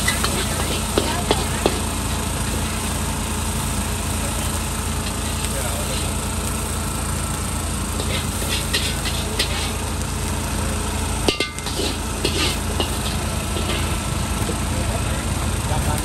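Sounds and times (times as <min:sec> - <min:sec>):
ladle scraping metal wok: 0:00.0 - 0:02.9, 0:05.0 - 0:06.2, 0:07.8 - 0:09.9, 0:11.2 - 0:14.3
steady low rumble: 0:04.3 - 0:16.0.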